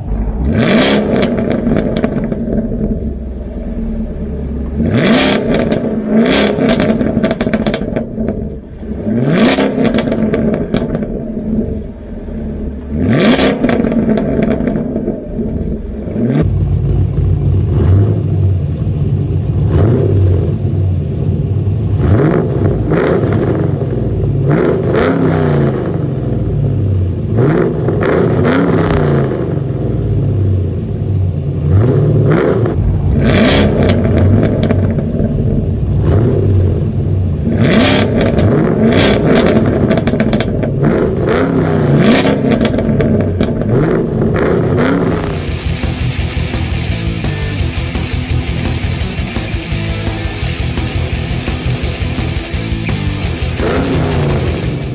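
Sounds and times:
car engine revving: 0.0 - 54.9.

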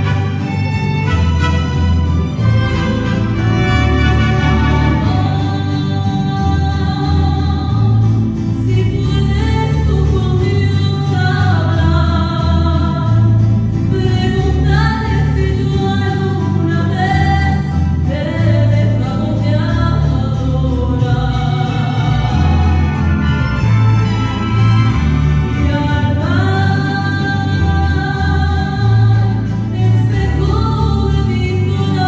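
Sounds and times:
mariachi band playing: 0.0 - 32.0
person singing: 4.1 - 13.3, 13.9 - 23.7, 25.5 - 32.0.

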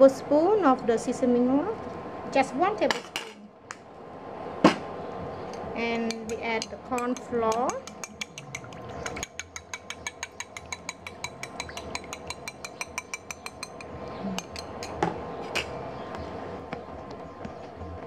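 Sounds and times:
spoon clinking against dish: 6.0 - 15.0.

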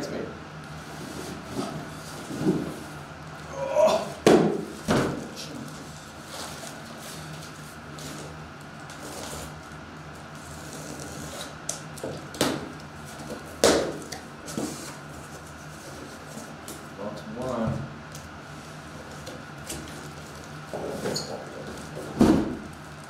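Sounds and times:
cardboard box knocking down: 4.2 - 5.2, 22.1 - 22.7.

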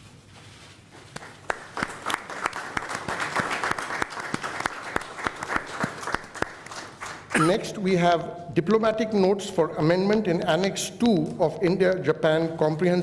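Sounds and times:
people clapping: 1.1 - 7.6.

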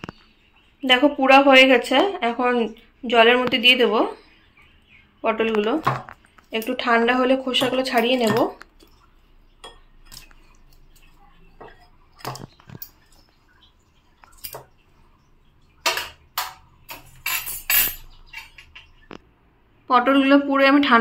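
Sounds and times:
small water splashes: 2.7 - 17.2.

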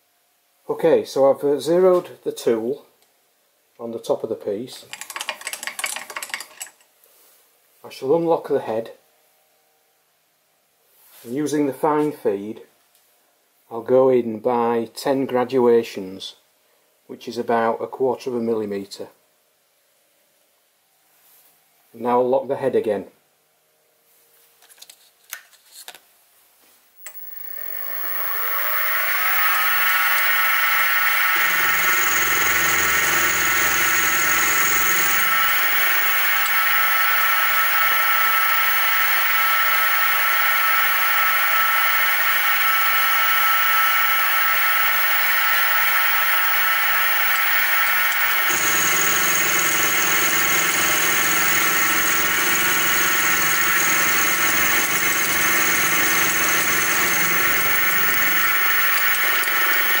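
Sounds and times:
milling spindle whine: 27.0 - 60.0.

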